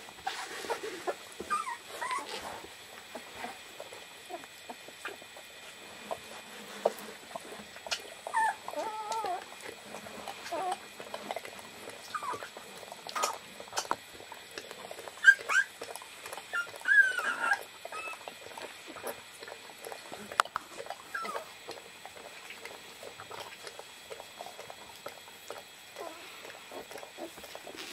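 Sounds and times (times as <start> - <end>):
scratching and rustling on bedding: 0.0 - 4.4, 5.0 - 10.8, 26.0 - 27.9
puppy whining and squeaking: 1.4 - 2.6, 7.8 - 9.4, 10.4 - 10.8, 12.0 - 12.5, 15.2 - 15.8, 16.5 - 18.3, 21.1 - 21.5.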